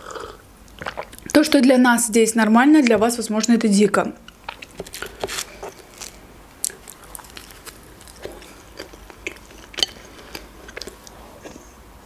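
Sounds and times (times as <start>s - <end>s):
biting and chewing pizza: 4.3s - 11.6s.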